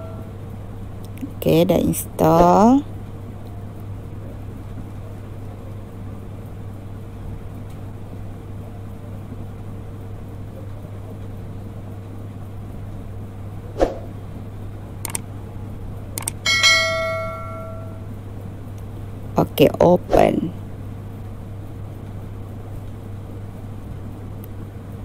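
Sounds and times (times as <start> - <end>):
bell-like ringing strike: 0.0 - 0.3, 16.4 - 18.1
low room hum: 0.0 - 25.0
sharp clicks: 15.0 - 15.3, 16.2 - 16.4.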